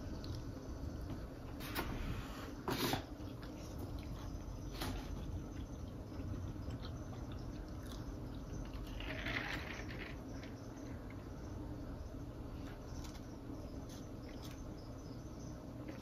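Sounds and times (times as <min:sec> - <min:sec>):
chewing: 0:03.1 - 0:11.2.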